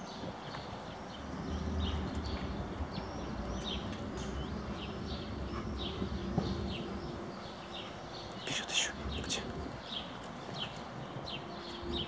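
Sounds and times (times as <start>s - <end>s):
small birds chirping: 0.0s - 12.0s
low rumble: 1.2s - 7.9s.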